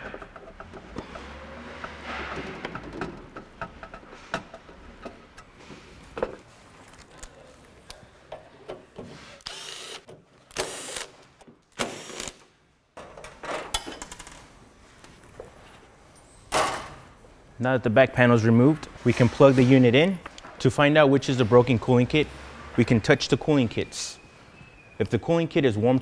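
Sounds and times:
cordless drill whirring: 0:09.4 - 0:10.0.

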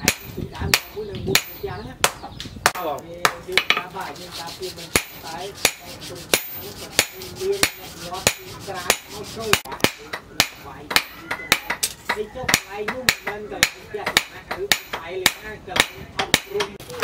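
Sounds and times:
hammer striking steel on anvil: 0:04.9 - 0:16.8.

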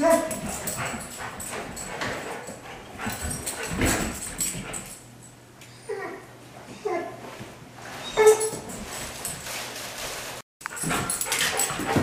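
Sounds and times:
dog whining: 0:08.0 - 0:08.7.

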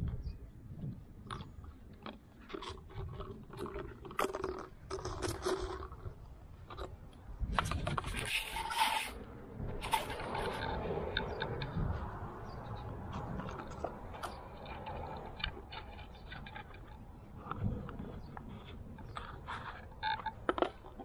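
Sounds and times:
puppies scuffling with paper cup: 0:07.6 - 0:09.2, 0:09.8 - 0:10.8.

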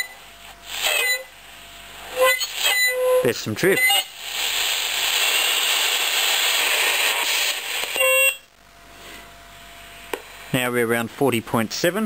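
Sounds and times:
radio receiver hissing: 0:00.0 - 0:01.3, 0:02.0 - 0:08.5
radio squeal: 0:00.0 - 0:01.3, 0:02.1 - 0:08.5.

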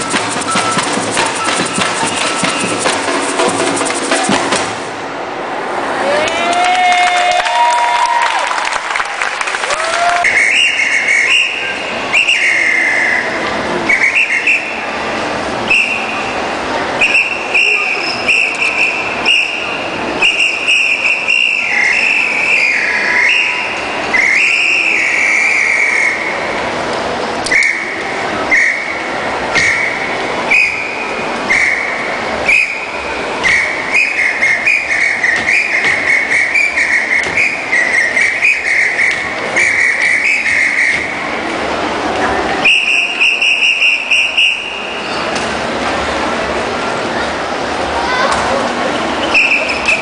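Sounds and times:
whistle blasts: 0:00.0 - 0:03.0, 0:10.2 - 0:14.9, 0:15.6 - 0:16.4, 0:17.0 - 0:26.5, 0:27.5 - 0:41.3, 0:42.6 - 0:45.2, 0:49.2 - 0:50.0
samba drum group: 0:00.0 - 0:05.0.

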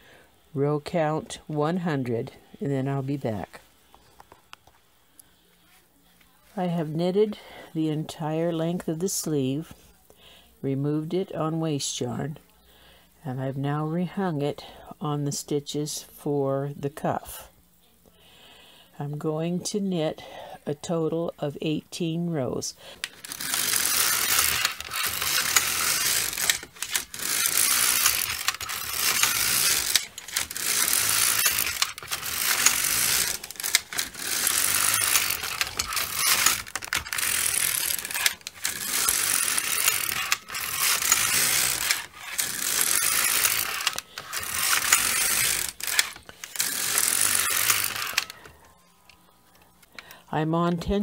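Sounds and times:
knitting machine carriage rattling: 0:23.0 - 0:48.6.

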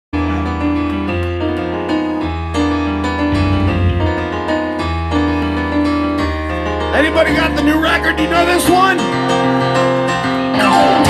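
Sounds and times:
electric keyboard chords: 0:00.2 - 0:08.5.

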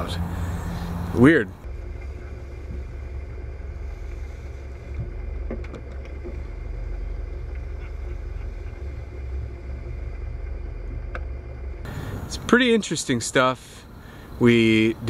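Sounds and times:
rushing air: 0:00.0 - 0:12.5
boat engine rumble: 0:00.0 - 0:15.0.

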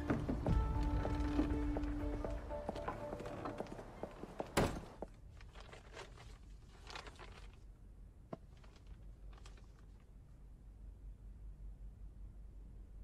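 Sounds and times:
background music: 0:00.0 - 0:04.8
wrapping paper crinkling: 0:05.3 - 0:07.7, 0:08.5 - 0:10.0.

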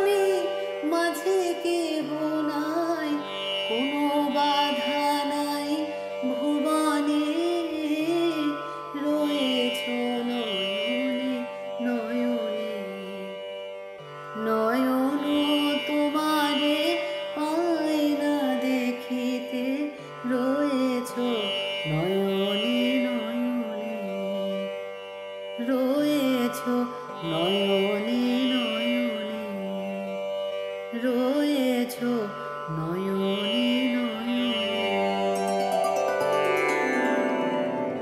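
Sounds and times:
gliding ornamented melody: 0:34.5 - 0:38.0.

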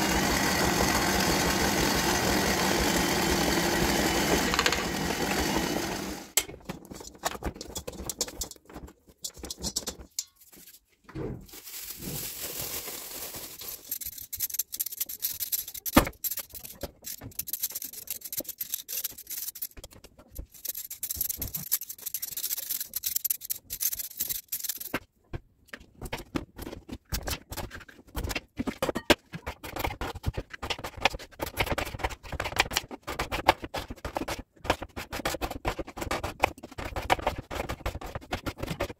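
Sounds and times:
dough kneading machine running: 0:00.0 - 0:06.4
peeler scraping potatoes: 0:12.7 - 0:25.0, 0:29.5 - 0:38.9.

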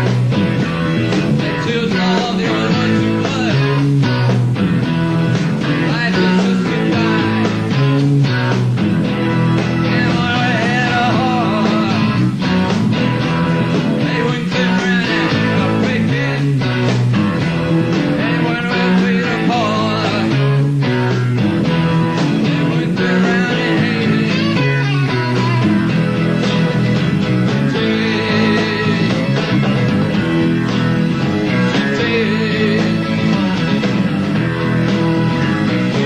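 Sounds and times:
bass line: 0:00.0 - 0:36.0
electric guitar lines: 0:00.0 - 0:36.0
live rock band playing: 0:00.0 - 0:36.0.

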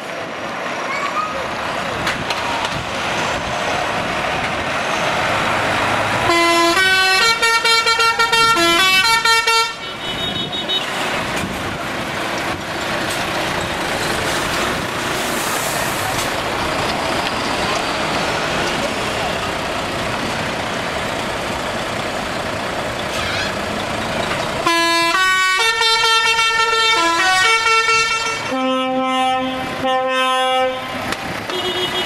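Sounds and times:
trucks driving past: 0:00.0 - 0:32.0
musical air horn tune: 0:06.3 - 0:10.8, 0:24.6 - 0:32.0.

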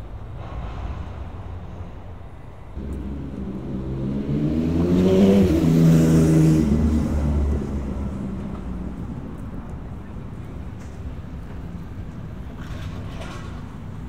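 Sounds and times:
motor vehicle passing by: 0:02.8 - 0:11.9.

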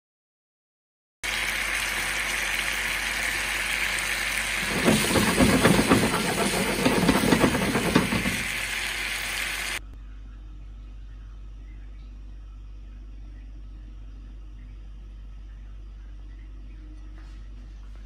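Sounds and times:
chicken sizzling in a frying pan: 0:01.2 - 0:09.8.

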